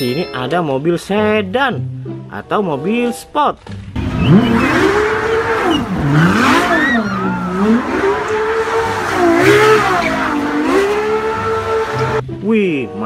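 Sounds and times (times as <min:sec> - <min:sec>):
car engine revving hard: 0:04.0 - 0:12.2
tyres squealing: 0:04.0 - 0:12.2.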